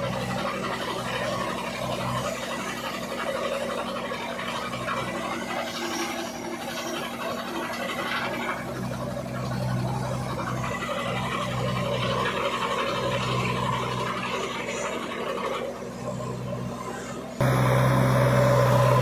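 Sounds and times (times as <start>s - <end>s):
diesel engine running: 0.0s - 19.0s.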